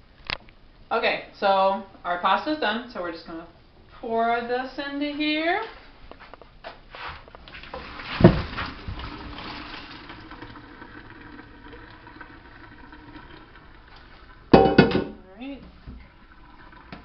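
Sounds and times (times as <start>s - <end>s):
water pouring through a colander: 7.5s - 14.5s, 15.7s - 17.0s
sharp knock: 14.6s - 15.2s.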